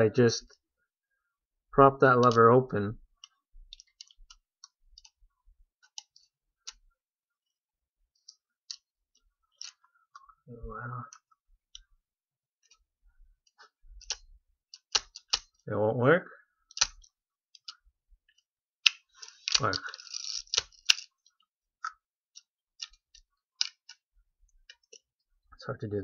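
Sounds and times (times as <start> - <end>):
small plastic clicks and ticks: 2.2 - 2.4, 3.2 - 5.2, 5.8 - 6.9, 12.6 - 15.6, 16.7 - 25.2.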